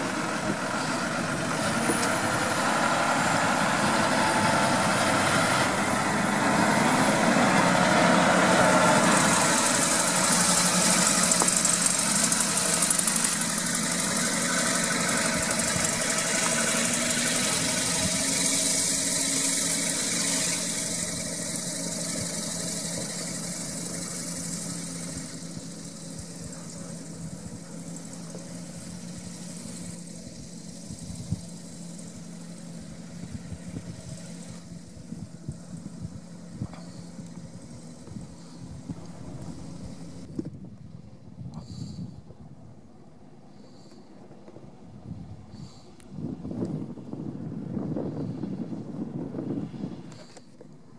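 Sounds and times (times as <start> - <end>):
tractor diesel engine running: 0.0 - 50.9
hiss: 6.4 - 40.3, 43.4 - 44.2, 45.4 - 46.1.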